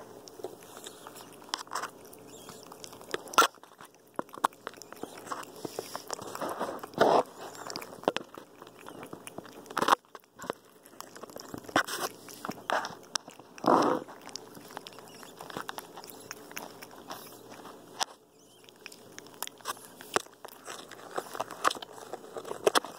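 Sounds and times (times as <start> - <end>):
monkey biting toy clicks and crunches: 0.1 - 22.9.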